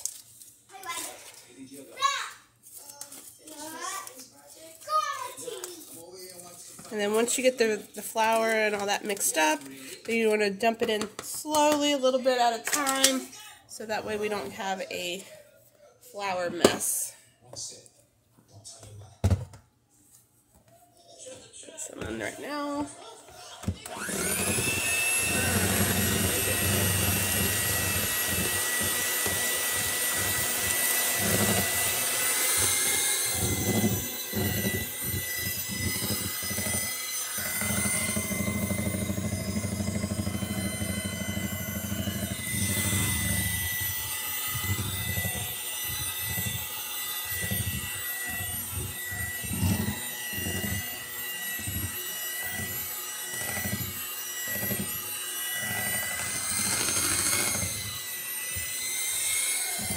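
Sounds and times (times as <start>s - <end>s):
beaters churning batter: 4.8s - 13.2s, 21.8s - 59.9s
electric hand mixer whine: 6.8s - 15.3s, 16.2s - 17.1s, 22.0s - 59.9s.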